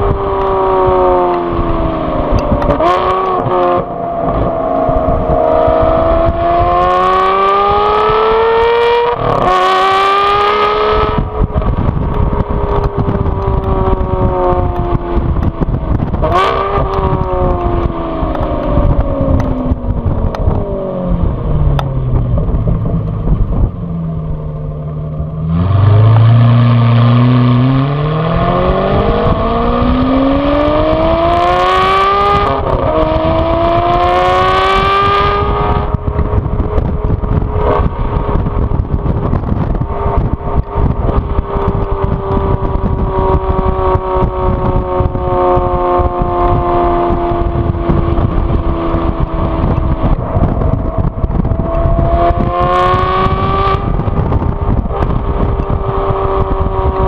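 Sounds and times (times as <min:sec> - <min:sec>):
car engine accelerating: 0:00.0 - 0:57.0.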